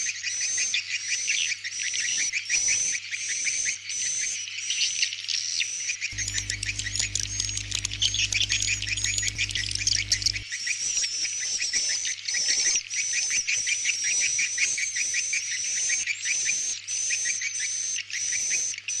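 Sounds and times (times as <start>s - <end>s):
low hum: 6.2s - 10.4s.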